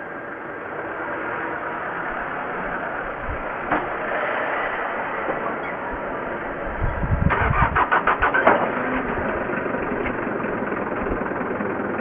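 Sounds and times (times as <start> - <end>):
diesel engine idling: 0.0 - 12.0
diesel engine cranking: 3.5 - 12.0.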